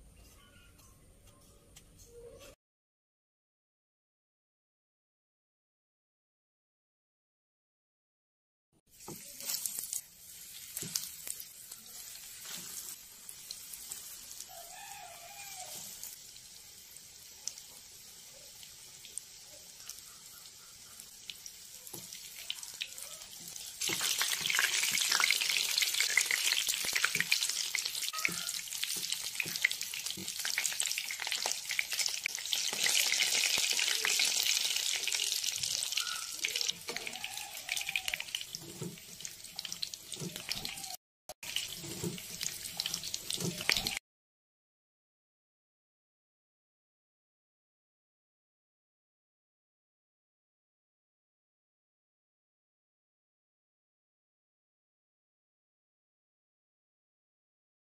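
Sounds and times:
food sizzling in hot oil: 8.9 - 44.0.

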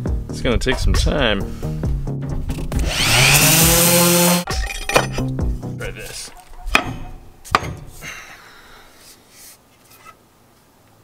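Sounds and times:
handling noise: 6.0 - 8.0
wooden handle knocking: 6.3 - 7.9.

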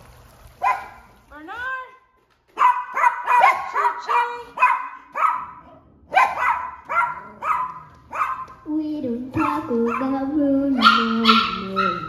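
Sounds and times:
dog barking rapidly: 0.6 - 1.1, 2.5 - 8.6, 9.4 - 10.2, 10.8 - 12.0.

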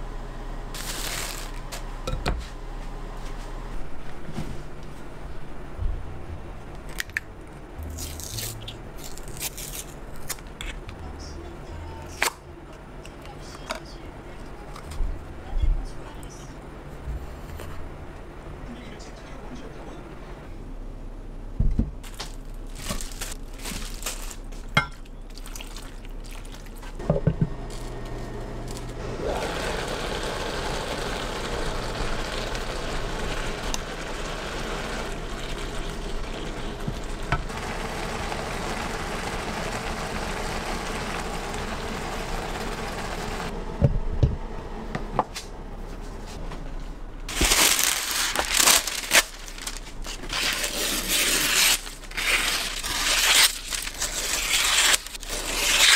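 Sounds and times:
parchment paper crinkling: 0.8 - 1.8, 22.0 - 24.7, 47.3 - 55.9
vegetables sizzling in a pan: 29.2 - 43.5.

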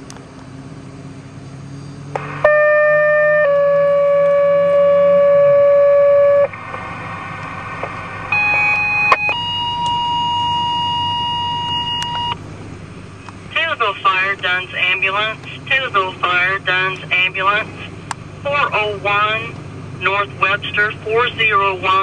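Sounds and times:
two-tone paging alert over radio: 8.3 - 12.4.

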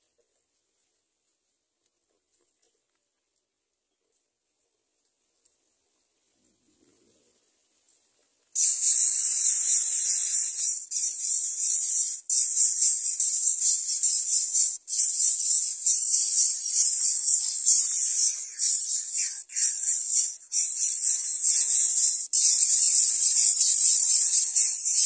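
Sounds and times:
nestlings begging rasping hiss: 8.6 - 25.0.

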